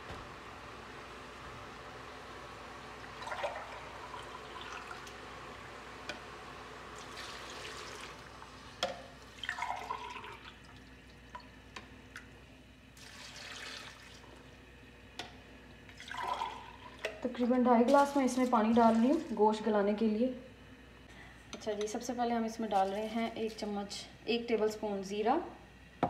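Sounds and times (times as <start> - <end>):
water pouring into a pot: 2.9 - 5.2, 6.9 - 11.5, 13.0 - 14.4, 15.9 - 17.0.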